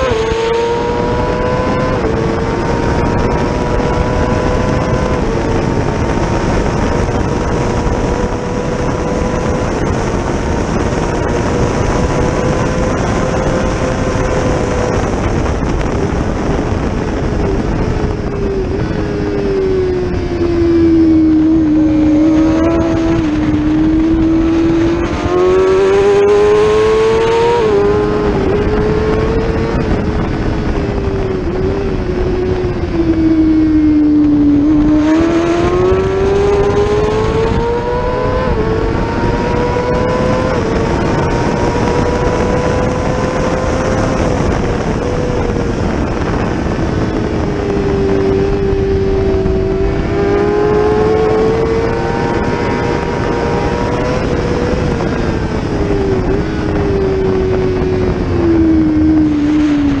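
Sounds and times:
motorcycle engine at high revs: 0.0s - 60.0s.

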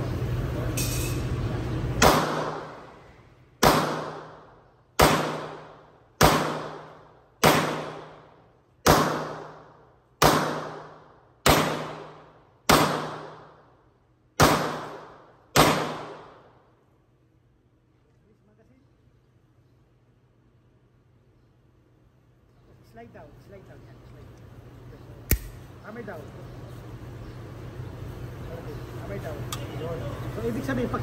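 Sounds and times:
pistol shots with echo: 2.0s - 2.8s, 3.6s - 13.6s, 14.4s - 16.5s.

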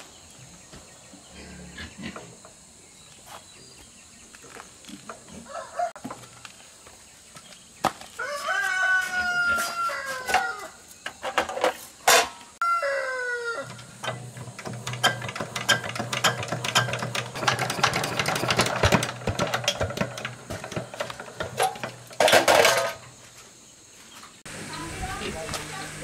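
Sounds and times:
rooster crowing: 5.4s - 6.0s, 8.2s - 10.8s, 12.6s - 14.0s.

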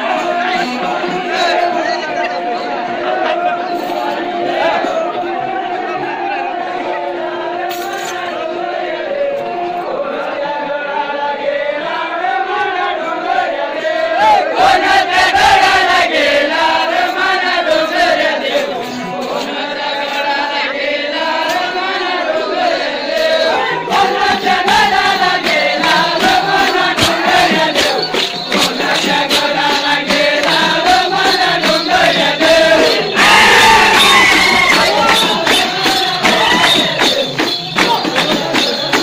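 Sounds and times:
sharp percussive beats: 0.0s - 5.4s, 14.1s - 39.0s
men chanting in unison: 0.0s - 39.0s.

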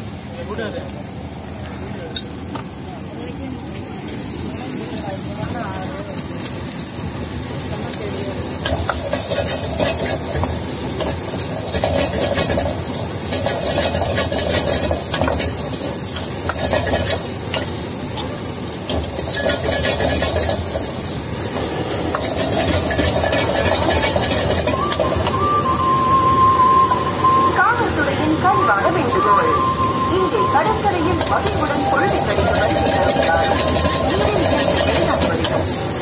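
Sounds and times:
chicken sizzling in a wok: 0.0s - 28.0s, 29.2s - 36.0s
metal ladle scraping a pan: 8.6s - 17.7s, 18.9s - 20.9s, 22.1s - 25.1s, 31.5s - 35.8s.

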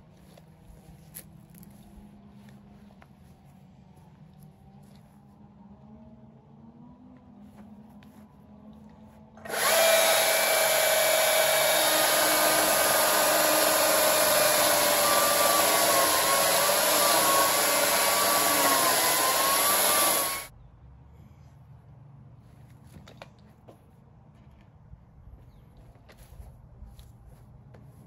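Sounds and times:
chainsaw cutting log: 9.4s - 20.5s.

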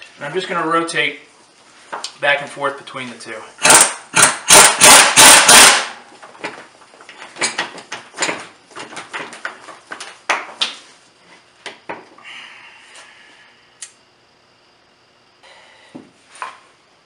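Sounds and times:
impact wrench hammering: 3.6s - 6.0s.

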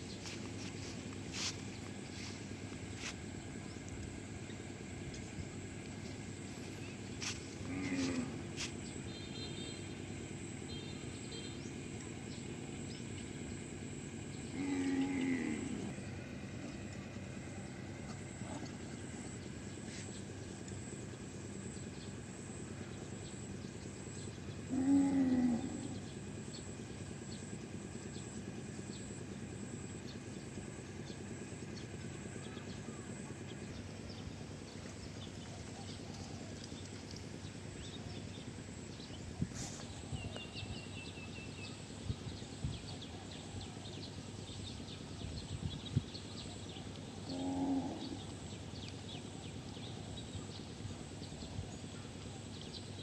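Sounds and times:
faint outdoor background: 0.0s - 53.0s
cattle mooing: 7.6s - 8.5s, 14.5s - 16.0s, 24.7s - 26.0s, 47.2s - 48.2s.

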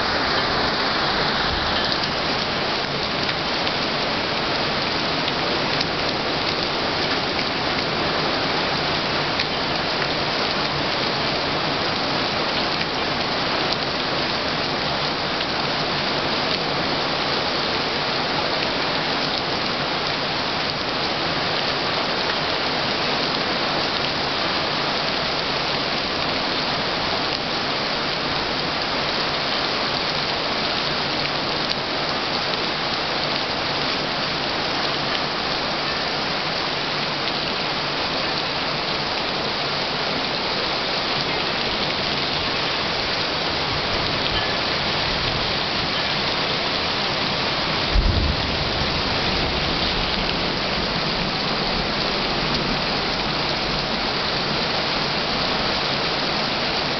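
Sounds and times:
heavy rain pouring: 0.0s - 56.9s
thunder clap and rumble: 47.8s - 52.0s.

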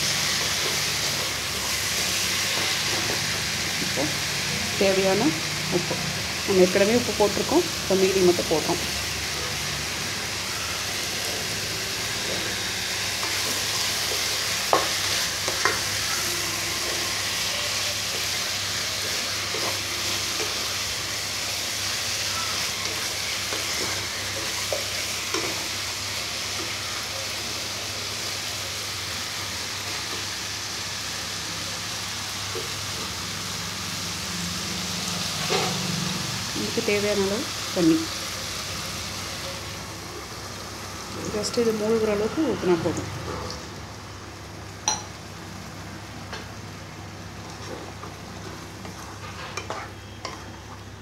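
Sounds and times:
food sizzling in oil: 0.0s - 51.0s.

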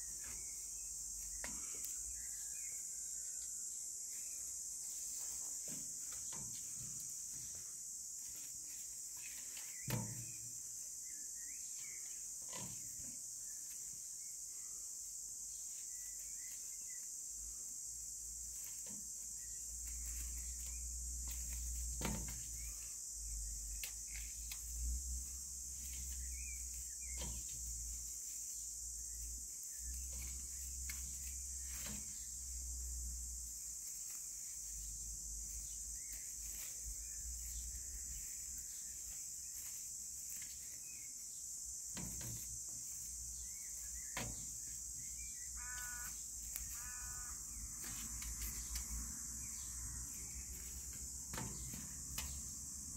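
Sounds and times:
high-pitched insect chorus: 0.0s - 52.9s
short animal calls: 45.6s - 47.4s.

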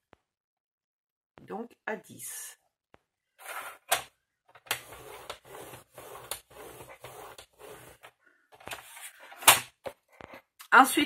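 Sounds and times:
paper trimmer slider scraping: 4.7s - 8.1s.

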